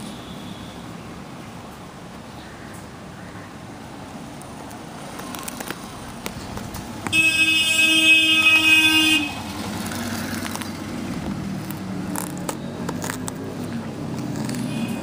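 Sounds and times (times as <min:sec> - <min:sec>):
vehicle horn: 0:07.1 - 0:09.4, 0:14.7 - 0:15.0.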